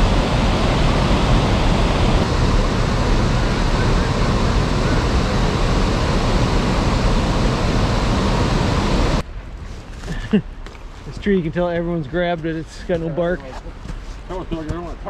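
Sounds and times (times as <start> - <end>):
river water rushing: 0.0 - 3.9.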